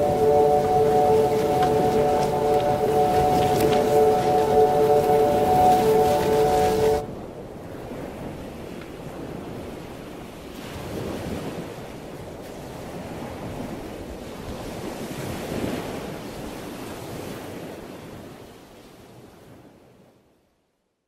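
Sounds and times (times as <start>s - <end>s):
rushing surf-like noise: 0.0s - 7.1s.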